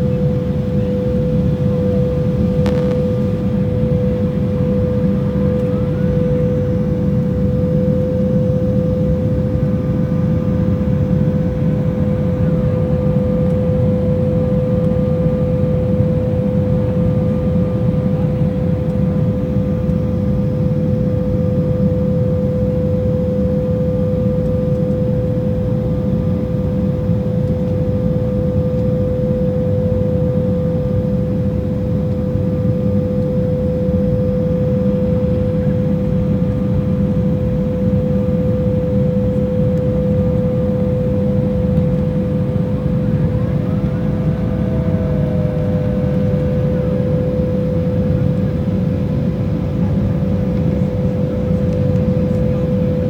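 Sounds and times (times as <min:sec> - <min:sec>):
higher whine: 0:00.0 - 0:14.0, 0:37.4 - 0:53.0
airflow and jet engine rush: 0:00.0 - 0:53.0
constant engine whine: 0:00.0 - 0:53.0.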